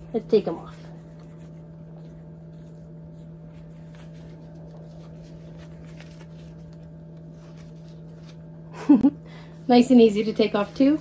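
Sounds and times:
low electrical hum: 0:00.0 - 0:11.0
fabric rustling and handling: 0:00.4 - 0:08.6.

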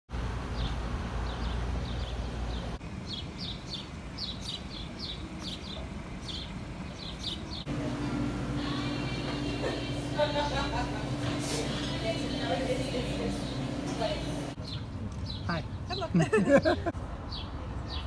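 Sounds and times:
low outdoor rumble: 0:00.1 - 0:17.0
indoor hum: 0:00.2 - 0:14.6
small bird chirping: 0:00.6 - 0:07.7.

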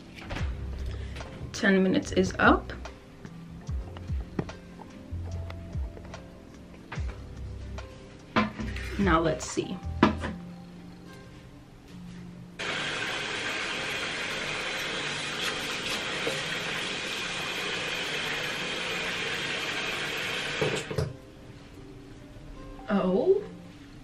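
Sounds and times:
water running from a tap: 0:12.6 - 0:21.1.

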